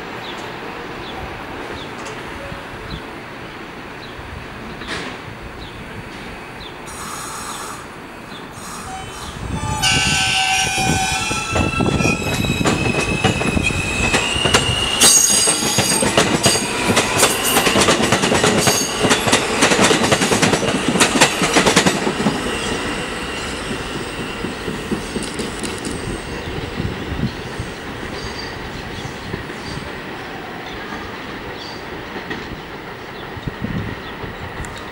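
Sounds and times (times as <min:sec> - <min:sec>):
subway train horn: 0:06.6 - 0:24.5
steel wheels squealing: 0:08.6 - 0:20.7.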